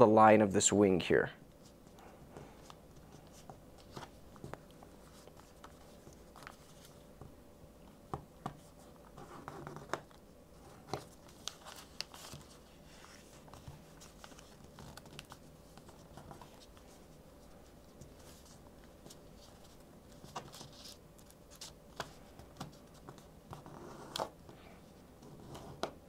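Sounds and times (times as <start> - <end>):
paper rustling and crinkling: 1.6 - 7.1, 8.4 - 24.5.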